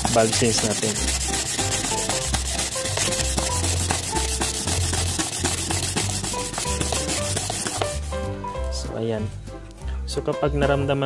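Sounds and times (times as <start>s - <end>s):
metal rubbing on sandpaper: 0.0s - 8.2s
background music with bass line: 0.0s - 11.0s.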